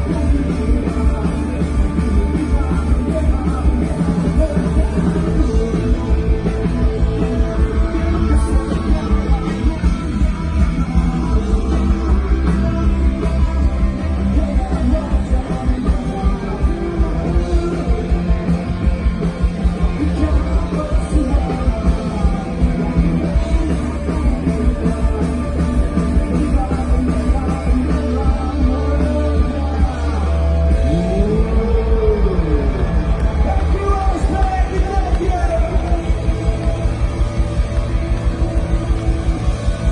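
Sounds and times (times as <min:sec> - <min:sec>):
electric guitars: 0:00.0 - 0:39.9
person singing: 0:00.0 - 0:39.9
drum beat: 0:31.0 - 0:39.9.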